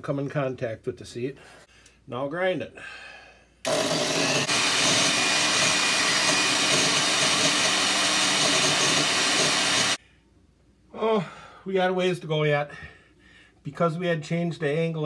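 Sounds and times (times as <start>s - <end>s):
valve grinder motor whine: 3.7s - 10.0s.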